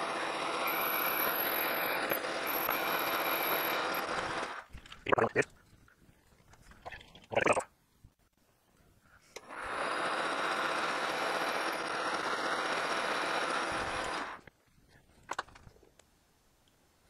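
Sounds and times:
metal lathe whining: 0.0 - 4.6, 9.4 - 14.4.

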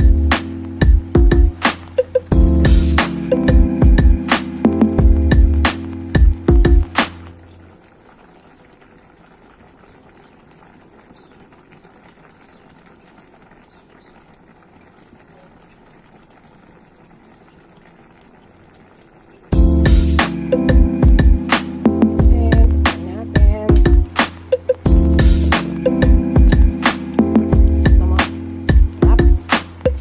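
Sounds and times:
background music: 0.0 - 7.4, 19.5 - 30.0
stew bubbling: 3.6 - 30.0.

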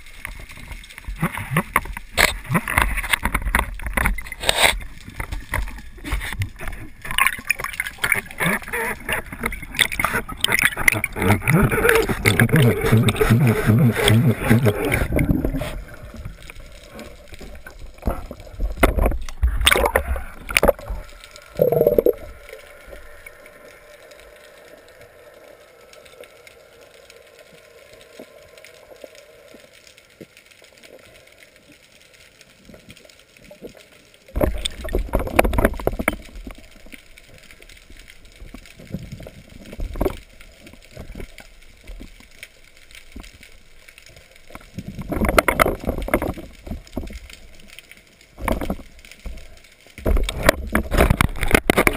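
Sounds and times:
muffled underwater water noise: 0.0 - 51.9
low hiss: 13.8 - 34.3.

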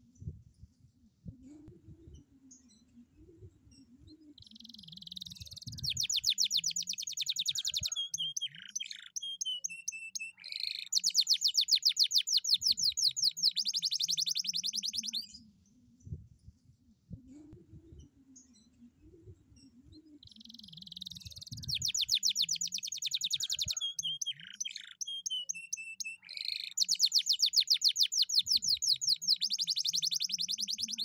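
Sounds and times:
canary singing: 4.4 - 15.4, 20.2 - 31.0.

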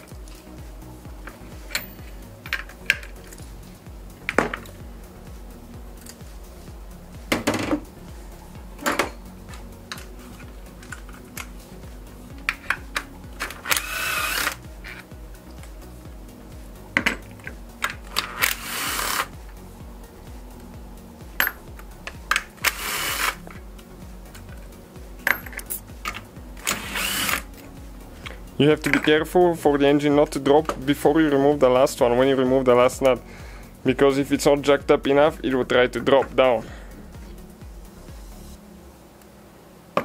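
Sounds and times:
ratchet wrench clicking: 12.5 - 15.0, 22.3 - 23.5.

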